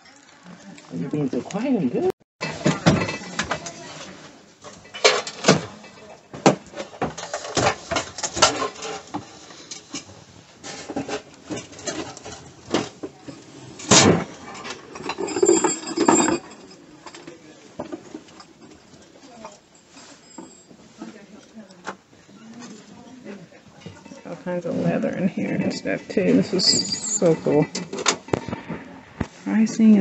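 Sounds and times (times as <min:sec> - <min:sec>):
small objects clattering on tables: 0:02.4 - 0:21.2.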